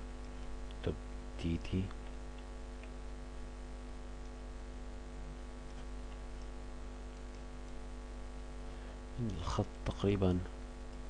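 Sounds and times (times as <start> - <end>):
electrical mains hum: 0.0 - 11.0
faint clicks: 7.1 - 7.8.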